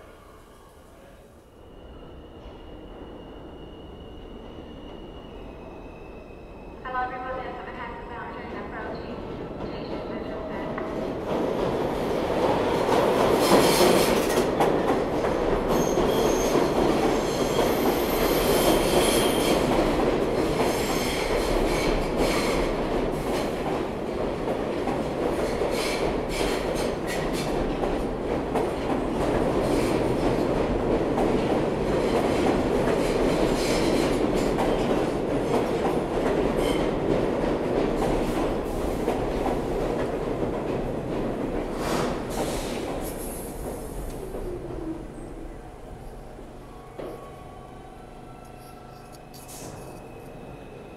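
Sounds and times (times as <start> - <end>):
train wheels rumbling on rail: 9.2 - 45.1
high wheel squeal: 15.7 - 19.5.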